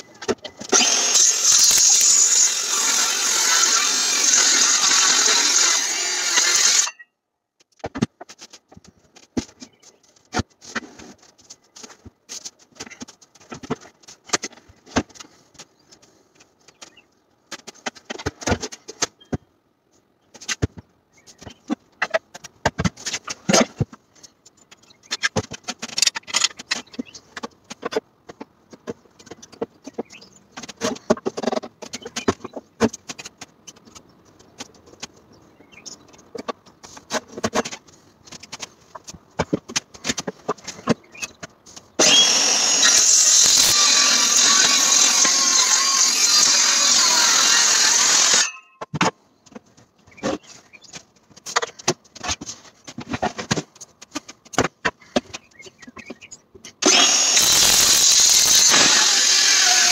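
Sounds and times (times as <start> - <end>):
circular saw running: 42.0 - 48.6, 56.8 - 59.9.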